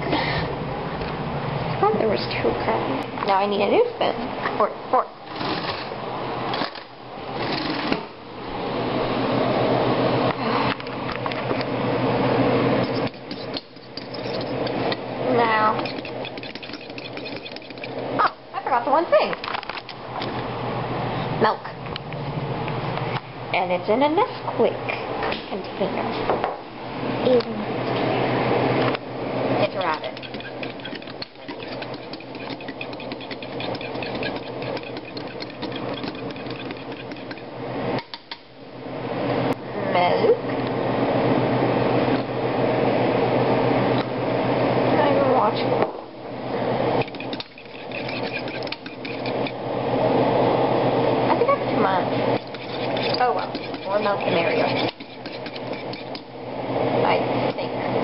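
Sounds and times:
fork beating eggs in bowl: 12.7 - 18.1, 29.6 - 38.5, 46.9 - 49.6, 52.1 - 56.3.

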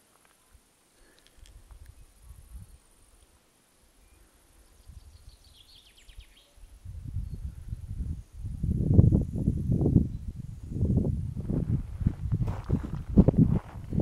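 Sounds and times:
faint high insect hiss: 0.0 - 13.3
wind rumbling on microphone: 1.4 - 2.8, 4.8 - 14.0.

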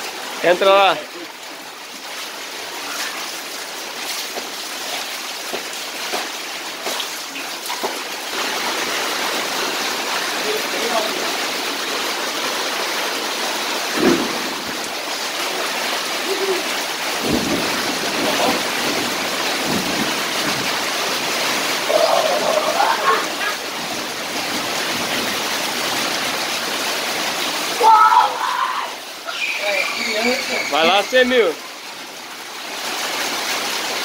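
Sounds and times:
heavy rain: 0.0 - 34.0
water pouring onto concrete: 0.1 - 34.0
child's voice: 22.7 - 23.6.

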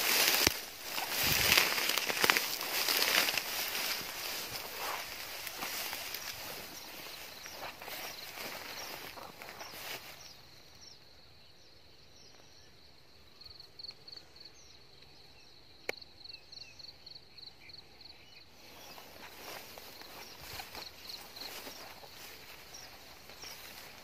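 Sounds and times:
footsteps rustling through dry grass: 0.0 - 10.5, 18.5 - 24.0
insects chirping: 0.0 - 24.0.

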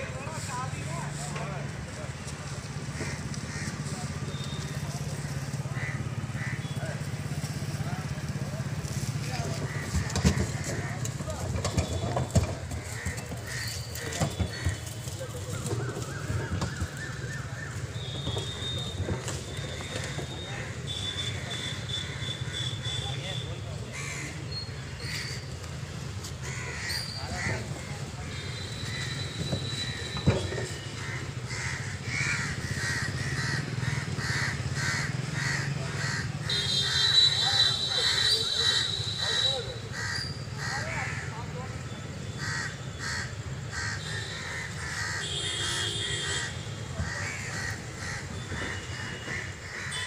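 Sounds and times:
crows cawing: 2.8 - 6.8, 9.4 - 11.1, 12.8 - 14.8, 19.5 - 23.0, 23.9 - 25.4, 26.4 - 29.3, 29.9 - 41.5, 42.3 - 50.0.

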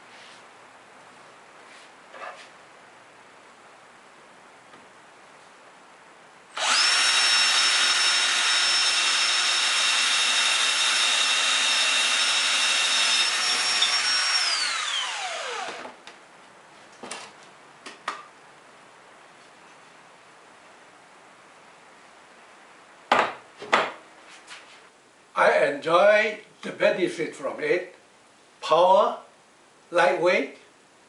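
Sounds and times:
drill motor whining: 6.6 - 16.0.

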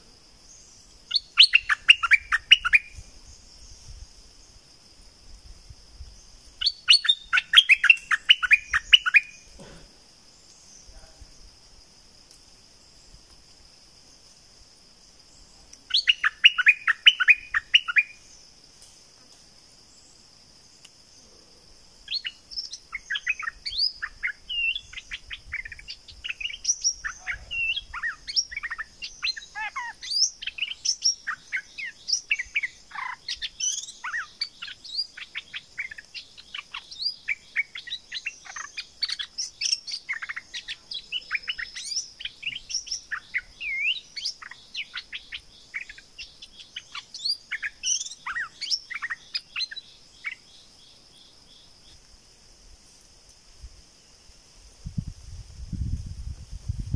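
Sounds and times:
faint high insect drone: 0.0 - 56.9
bird chirping and whistling: 1.1 - 3.0, 6.6 - 9.4, 15.9 - 18.1, 22.1 - 49.8.

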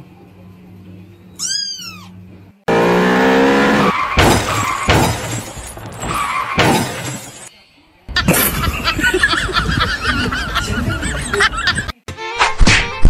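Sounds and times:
kitten meowing: 1.4 - 2.2
sharp thumps: 2.7 - 7.5.

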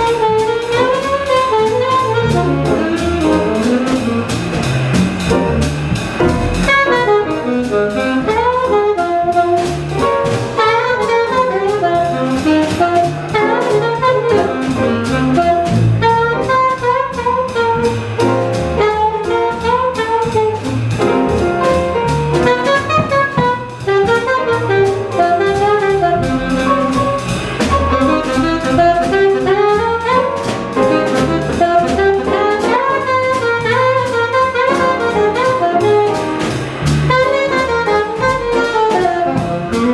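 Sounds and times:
alto saxophone melody: 0.0 - 39.9
drum kit cymbals and drums: 0.0 - 39.9
piano: 0.0 - 39.9
upright double bass: 0.0 - 39.9.

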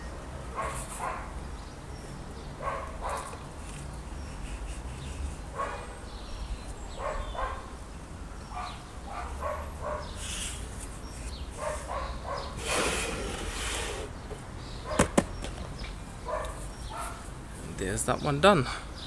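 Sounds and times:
dog barking: 0.5 - 1.4, 2.6 - 3.3, 5.6 - 6.0, 7.0 - 7.7, 8.5 - 10.2, 11.6 - 12.6, 14.8 - 15.2, 16.2 - 17.3.

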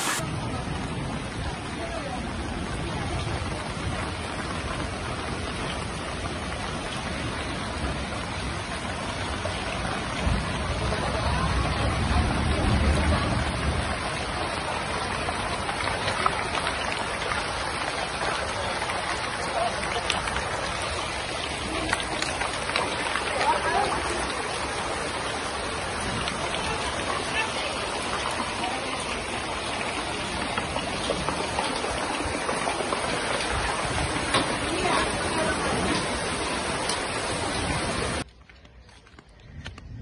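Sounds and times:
flood water rushing: 0.0 - 38.3.

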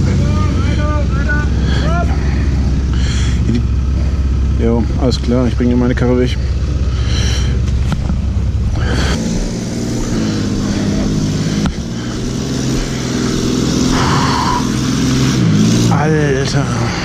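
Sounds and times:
vehicle engine idling and revving: 0.0 - 17.0.

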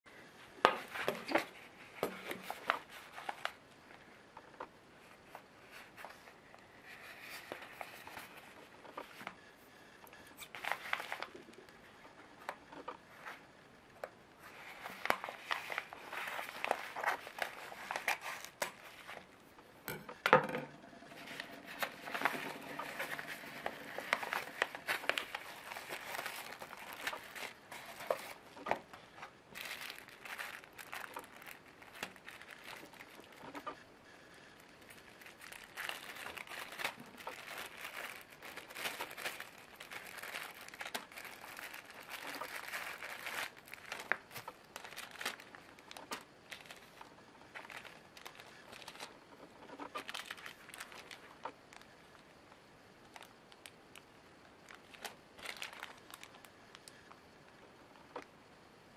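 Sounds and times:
plastic bags crinkling: 10.4 - 11.8, 14.4 - 19.4, 21.0 - 52.3, 53.0 - 57.0.

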